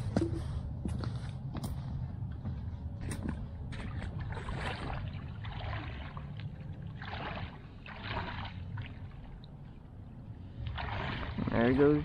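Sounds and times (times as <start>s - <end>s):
water sloshing and splashing: 3.1s - 12.0s.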